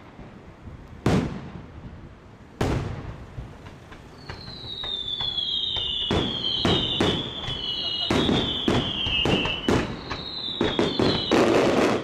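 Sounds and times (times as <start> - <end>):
firework shells bursting: 2.6 - 12.0
high falling whistles: 4.1 - 12.0.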